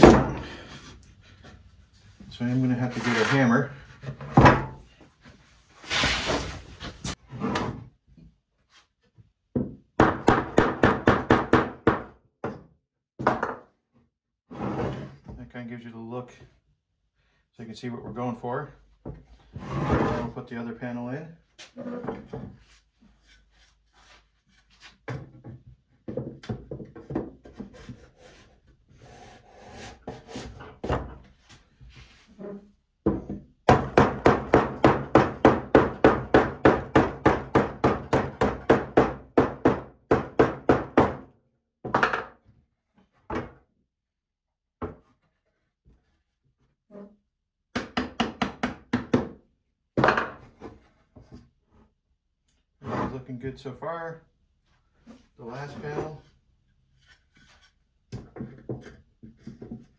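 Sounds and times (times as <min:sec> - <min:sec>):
wood scraping: 0:00.2 - 0:04.4.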